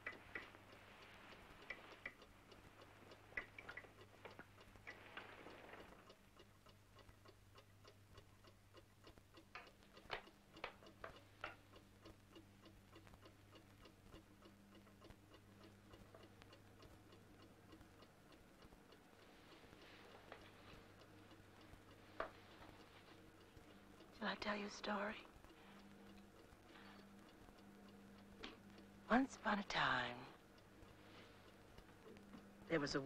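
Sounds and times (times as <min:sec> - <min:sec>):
sharp clicks: 0:00.0 - 0:00.8
faint clock ticking: 0:00.0 - 0:33.0
low steady hum: 0:00.0 - 0:33.0.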